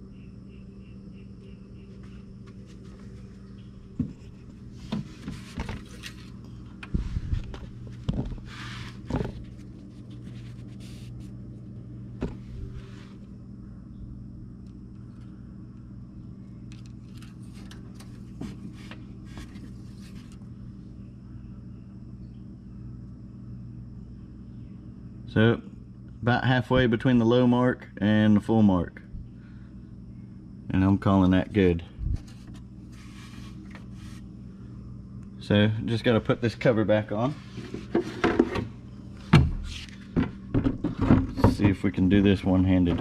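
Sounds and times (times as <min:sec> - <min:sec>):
steady low hum: 0:00.0 - 0:43.0
hands clunking and scraping in engine: 0:02.0 - 0:11.4, 0:12.2 - 0:13.2, 0:16.7 - 0:20.5, 0:32.1 - 0:34.3, 0:37.2 - 0:42.0, 0:42.8 - 0:43.0.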